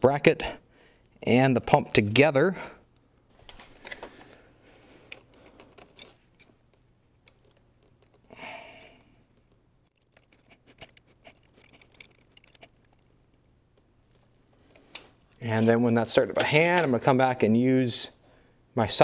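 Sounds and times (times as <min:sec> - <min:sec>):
bolt clicks and rustling: 0:02.9 - 0:04.4, 0:05.0 - 0:08.3, 0:09.2 - 0:15.7.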